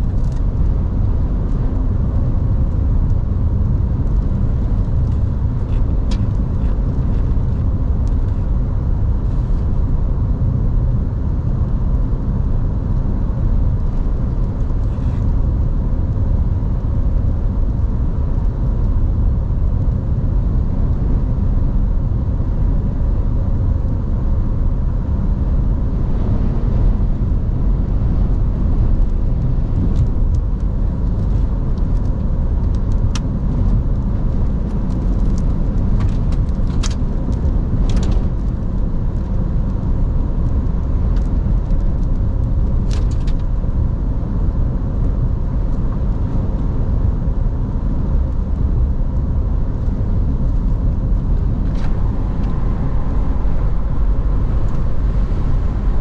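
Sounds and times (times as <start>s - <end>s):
road and wind noise in car: 0.0s - 56.0s.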